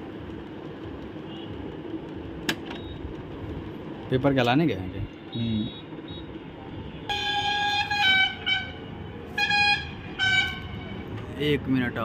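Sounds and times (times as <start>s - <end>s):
horn sounding held notes: 7.1s - 11.0s.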